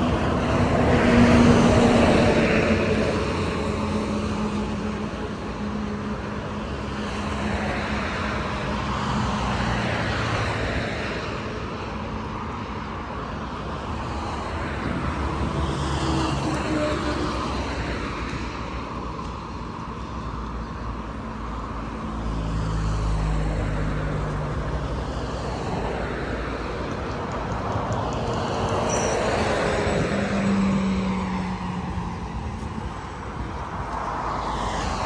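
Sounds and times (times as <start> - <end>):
passing vehicle engine: 0.0 - 13.0, 20.8 - 35.0
outdoor traffic noise: 0.0 - 35.0.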